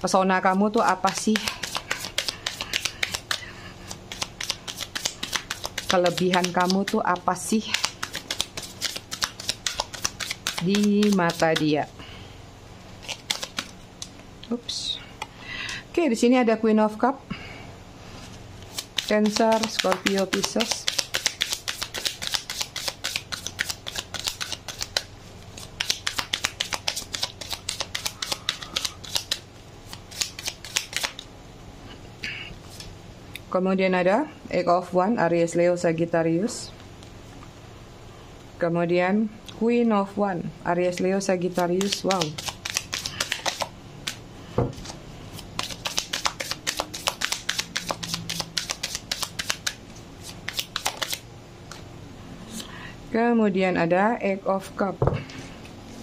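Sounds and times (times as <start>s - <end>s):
cards being shuffled: 0.8s - 11.8s, 13.0s - 14.2s, 18.6s - 31.3s, 41.5s - 44.2s, 44.8s - 51.8s.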